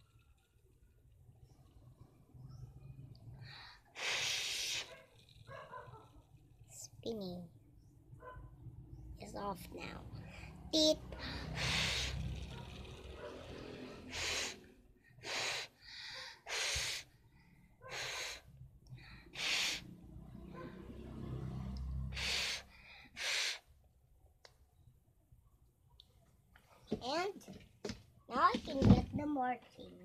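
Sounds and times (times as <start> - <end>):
child blowing short puffs: 3.8 - 5.0, 11.2 - 12.4, 14.1 - 17.1, 17.9 - 18.5, 19.3 - 19.9, 22.1 - 23.7.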